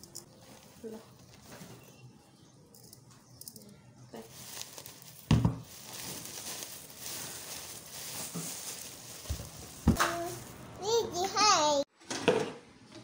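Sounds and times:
sack rustling and crinkling: 0:04.2 - 0:10.7.

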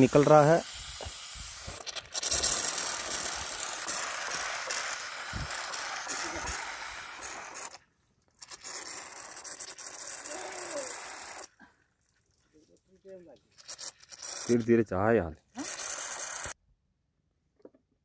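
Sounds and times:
air hissing out of water pump: 0:00.0 - 0:07.8, 0:08.4 - 0:11.5, 0:13.5 - 0:14.7, 0:15.6 - 0:16.6.

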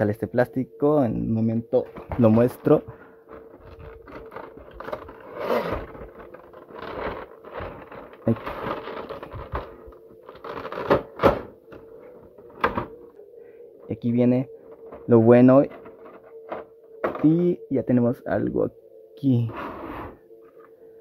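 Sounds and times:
plastic packaging crinkling: 0:01.8 - 0:13.0.

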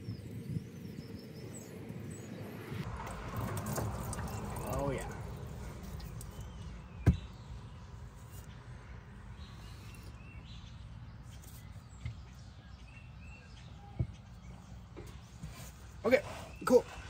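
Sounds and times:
low outdoor rumble: 0:00.2 - 0:17.0.

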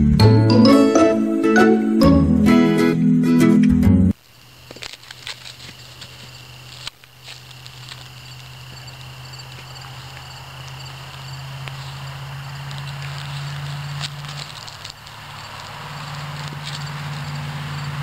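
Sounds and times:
insect chirring: 0:04.1 - 0:18.0
crinkle toy crackling: 0:04.2 - 0:18.0.

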